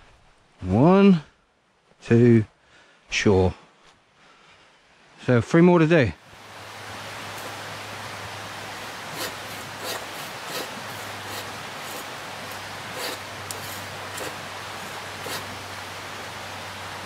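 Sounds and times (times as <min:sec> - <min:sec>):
river water rushing: 0:06.2 - 0:17.0.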